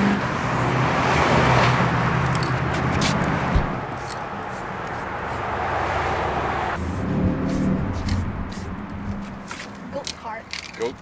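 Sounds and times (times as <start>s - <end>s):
street traffic: 0.0s - 11.0s
spray can hissing: 3.9s - 5.4s, 6.8s - 8.8s
vehicle engine running: 6.8s - 9.9s.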